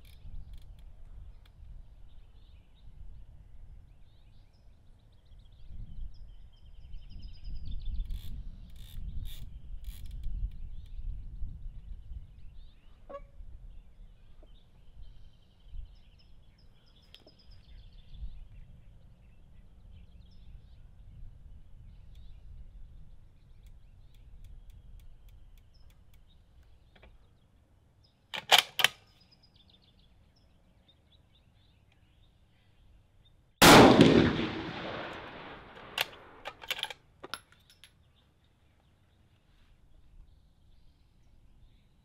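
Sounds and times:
faint bird calls: 12.5 - 21.1
metallic clicks: 28.4 - 29.2, 34.0 - 38.0
rifle bolt clicks: 28.4 - 29.2, 33.6 - 38.0
rifle shot echoing: 33.6 - 36.6.

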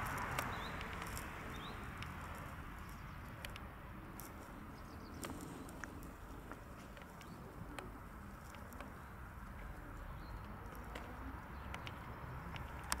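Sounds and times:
light clicks: 10.7 - 13.0.

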